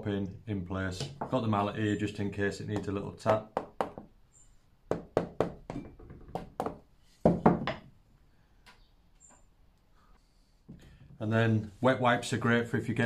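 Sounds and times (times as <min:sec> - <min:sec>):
sharp wooden knocks: 0:02.7 - 0:04.1, 0:04.9 - 0:07.9.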